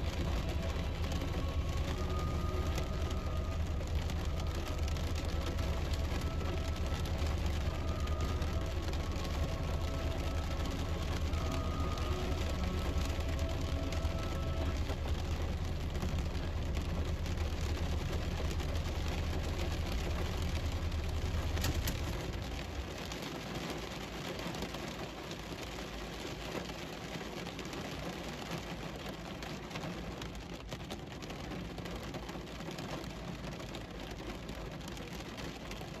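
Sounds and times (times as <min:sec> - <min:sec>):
low hum: 0:00.0 - 0:22.9
heavy rain on car roof: 0:00.0 - 0:36.0.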